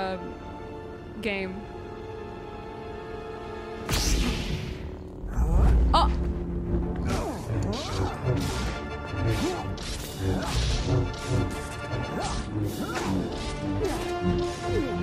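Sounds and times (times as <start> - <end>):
film music with held notes: 0.0 - 15.0
lightsaber humming swooshes: 7.1 - 15.0
lightsaber blades clashing: 7.6 - 15.0.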